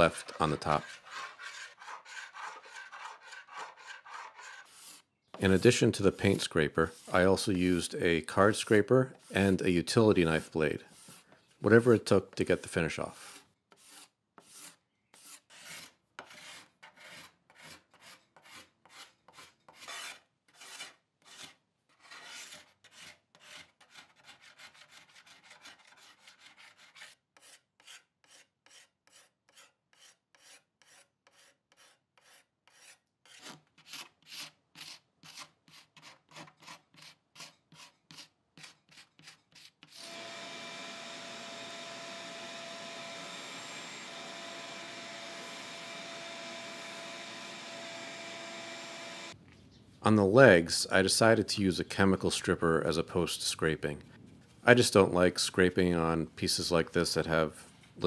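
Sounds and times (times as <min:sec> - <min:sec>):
hand scrapers rasping on wood: 0:00.0 - 0:07.5, 0:10.3 - 0:11.3, 0:13.2 - 0:40.5
vacuum cleaner humming: 0:40.1 - 0:49.4.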